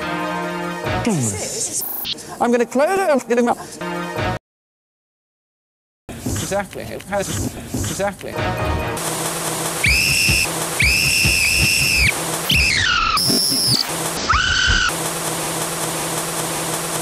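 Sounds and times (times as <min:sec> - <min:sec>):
whistle blasts at changing pitches: 0:09.8 - 0:14.9.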